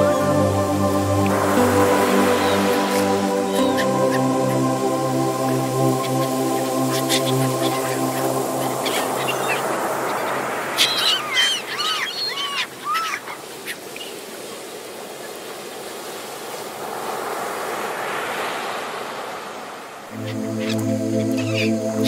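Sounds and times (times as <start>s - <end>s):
music tones: 0.0s - 10.0s, 20.1s - 22.0s
waves breaking on shore: 0.0s - 22.0s.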